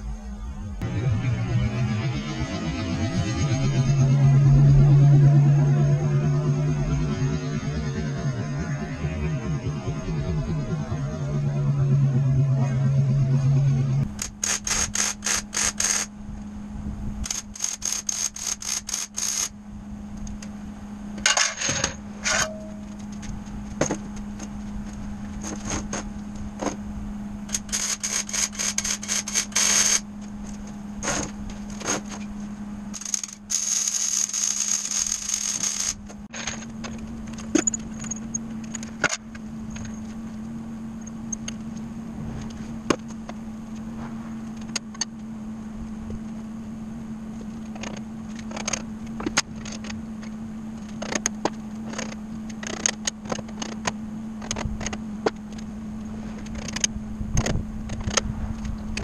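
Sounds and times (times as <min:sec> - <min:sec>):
steady low hum: 0:00.0 - 0:59.0
arc welding crackling: 0:14.0 - 0:16.1, 0:17.2 - 0:19.5, 0:27.4 - 0:32.2, 0:32.9 - 0:36.1.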